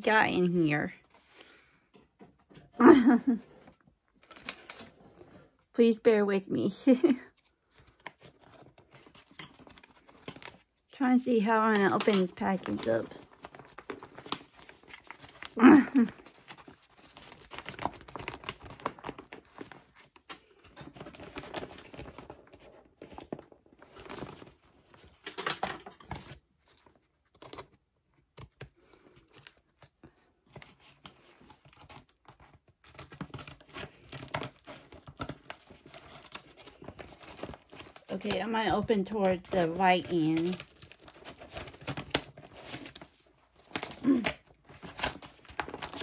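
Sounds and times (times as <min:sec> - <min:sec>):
padded paper mailer crinkling: 0:06.6 - 0:46.0.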